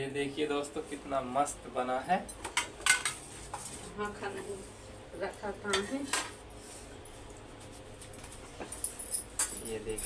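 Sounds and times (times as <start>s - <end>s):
utensils and plates clinking: 8.6s - 10.0s.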